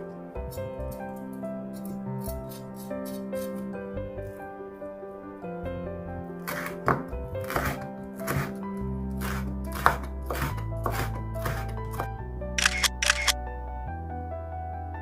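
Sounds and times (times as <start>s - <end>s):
background music: 0.0s - 15.0s
knife slicing on cutting board: 1.8s - 3.6s, 6.5s - 8.6s, 9.2s - 12.1s
camera shutter clicks: 12.6s - 13.4s.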